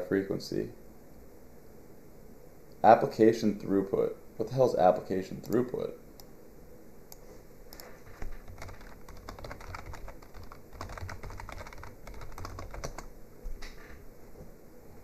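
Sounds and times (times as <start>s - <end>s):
typing on a keyboard: 7.7s - 13.1s.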